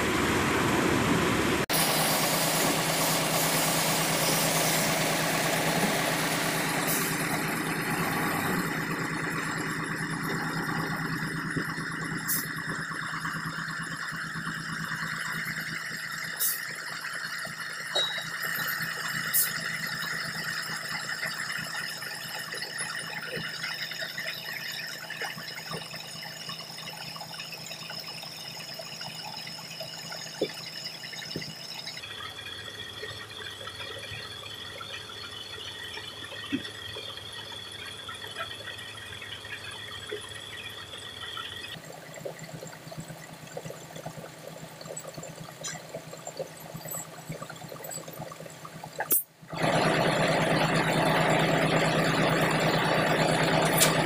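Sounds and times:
diesel truck engine idling: 0.0s - 14.9s
high steady whine: 0.0s - 28.1s.

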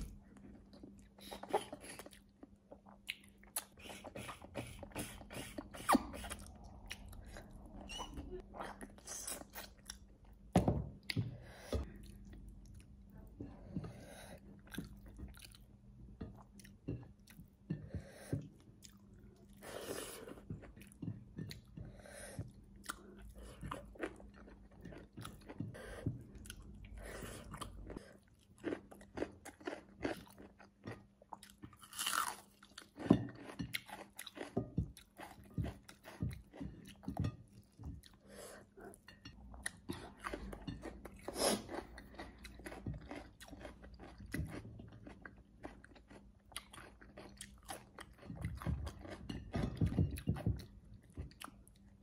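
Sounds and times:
chewing and biting on ribs: 27.4s - 37.2s, 39.6s - 50.0s.

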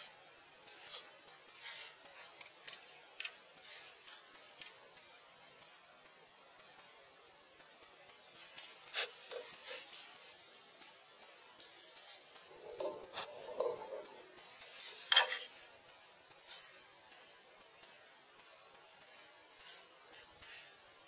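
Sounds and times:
hand tool scraping and rasping: 12.3s - 15.6s.

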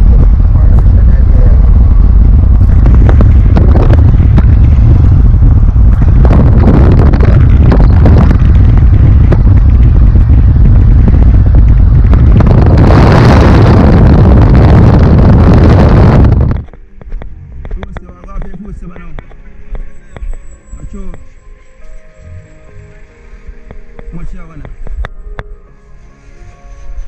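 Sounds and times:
wind buffeting microphone: 0.0s - 19.2s
car road noise rumble: 0.0s - 27.0s.

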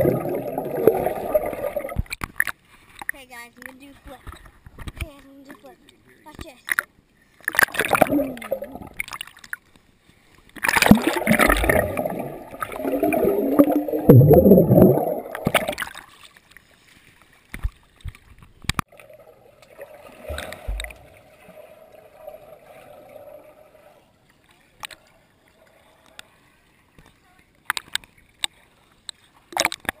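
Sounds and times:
muffled water sloshing and gurgling: 0.0s - 2.2s, 7.4s - 9.6s, 10.5s - 24.8s
sharp clicks underwater: 0.0s - 5.7s, 6.3s - 9.8s, 10.5s - 16.6s, 17.5s - 21.1s, 24.8s - 25.1s, 27.0s - 30.0s.

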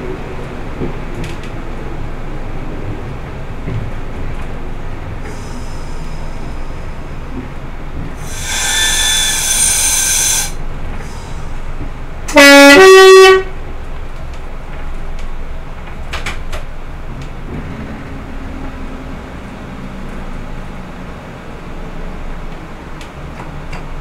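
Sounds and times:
diesel railcar running: 0.0s - 24.0s
high-pitched ringing: 8.2s - 10.6s
two-note train horn blast: 8.2s - 10.6s, 12.3s - 13.6s.

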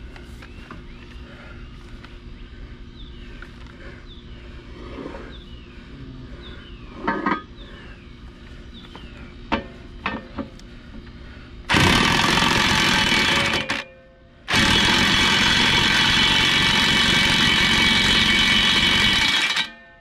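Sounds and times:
loud power tool running: 11.7s - 13.8s, 14.5s - 19.8s.

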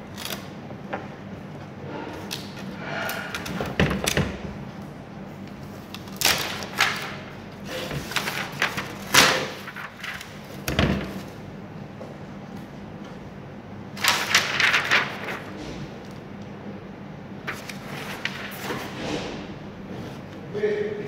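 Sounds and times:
paper sheet rustling: 6.1s - 11.4s, 14.0s - 16.2s, 17.4s - 19.4s.

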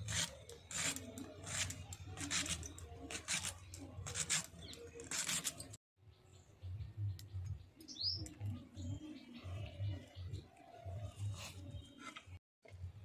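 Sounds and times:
bird chirping: 3.6s - 12.2s.

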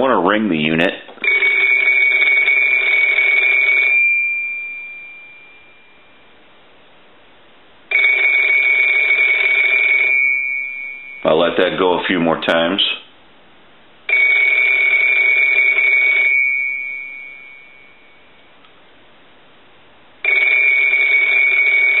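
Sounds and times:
telephone bells ringing: 1.2s - 6.2s, 7.9s - 11.9s, 14.1s - 18.4s, 20.2s - 22.0s.

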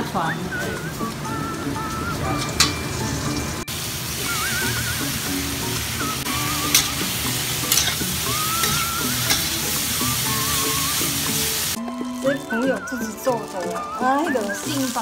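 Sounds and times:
vegetables sizzling in a wok: 0.0s - 15.0s
metal spatula stirring: 6.4s - 11.7s
spatula clicking against wok: 6.6s - 9.9s.

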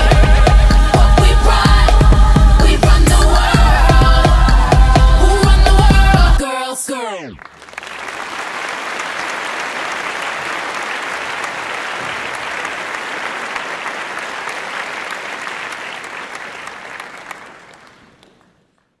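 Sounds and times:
audience applauding: 7.2s - 19.0s.

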